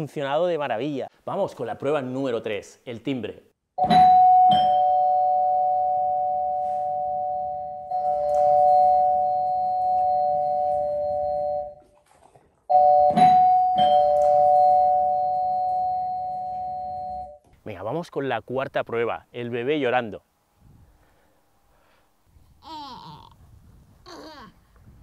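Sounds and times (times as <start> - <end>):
two-tone doorbell chime: 3.8 - 11.8, 12.7 - 17.4.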